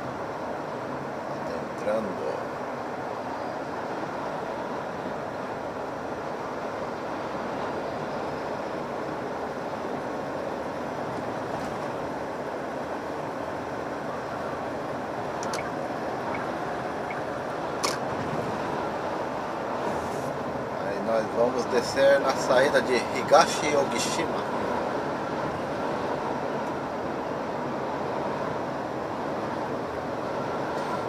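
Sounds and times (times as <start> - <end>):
truck engine and road noise: 0.0 - 31.0
short clicks: 15.4 - 15.7.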